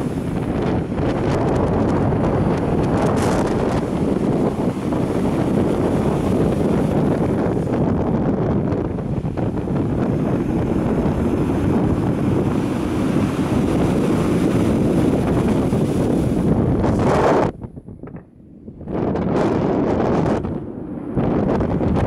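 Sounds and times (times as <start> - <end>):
surf washing up pebble beach: 0.0 - 7.9, 9.1 - 17.1
wind buffeting microphone: 0.0 - 22.0.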